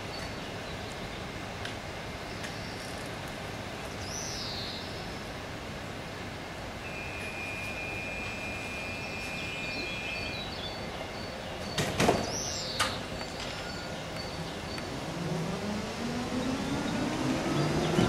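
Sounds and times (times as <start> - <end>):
high steady tone: 6.8 - 11.0
tram motor whining: 6.8 - 11.7.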